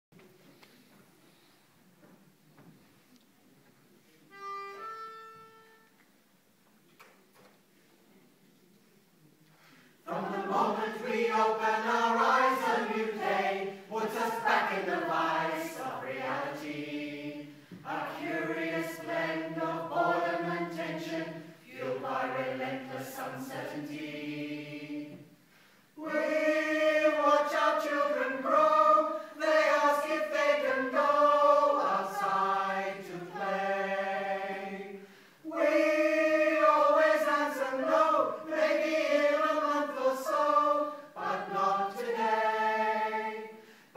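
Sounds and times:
choir singing: 10.0s - 25.4s, 26.0s - 43.9s.

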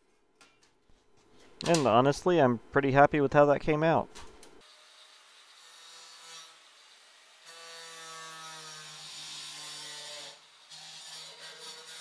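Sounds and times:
angle grinder cutting sheet steel: 4.6s - 12.0s.

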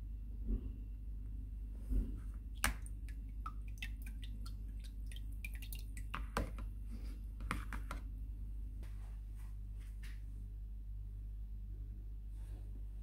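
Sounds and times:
water dripping into bowl: 2.5s - 6.7s.

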